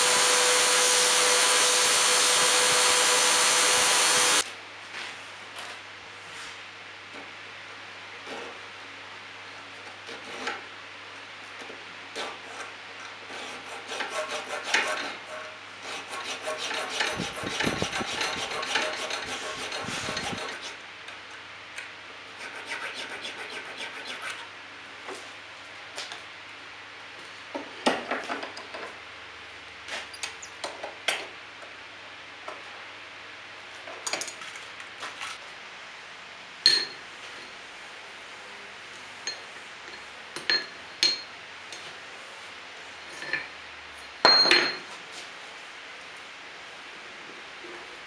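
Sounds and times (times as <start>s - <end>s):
hand file rasping on steel: 13.3s - 20.8s, 22.4s - 24.5s.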